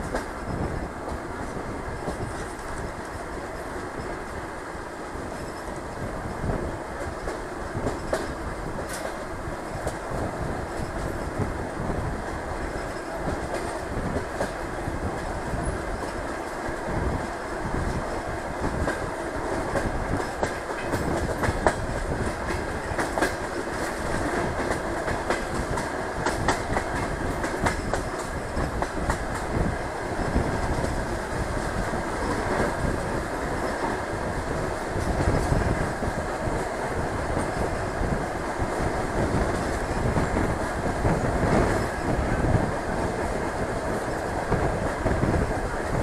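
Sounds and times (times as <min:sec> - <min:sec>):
train rumble and rushing air: 0:00.0 - 0:46.0
wheels clicking over rail joints: 0:17.7 - 0:38.1.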